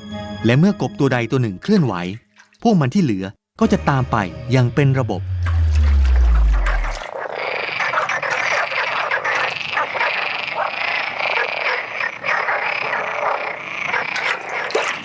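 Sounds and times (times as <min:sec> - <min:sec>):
chorus of frogs croaking: 0:05.2 - 0:15.0.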